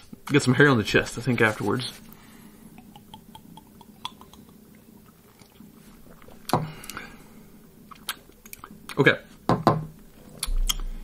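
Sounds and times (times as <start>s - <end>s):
people gulping liquor: 2.1s - 8.9s
mouth and lip clicks: 2.7s - 4.6s, 7.9s - 9.0s, 10.4s - 10.9s
vocal exhale: 6.5s - 7.6s.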